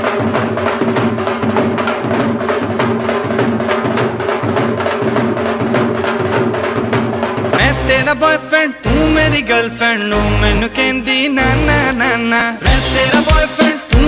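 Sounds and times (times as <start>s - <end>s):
drums played with sticks: 0.0s - 8.4s, 12.6s - 14.0s.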